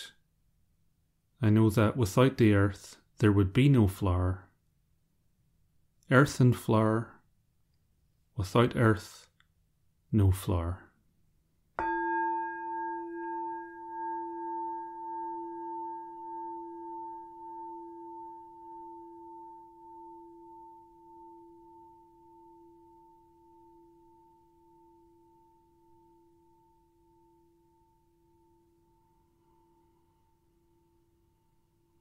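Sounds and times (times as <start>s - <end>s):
singing bowl ringing: 11.8s - 32.0s.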